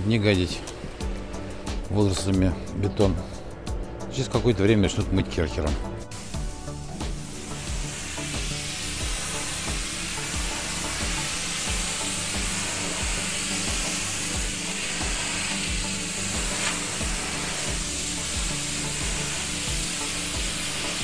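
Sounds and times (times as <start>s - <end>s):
pressure washer jet hissing: 6.1s - 21.0s.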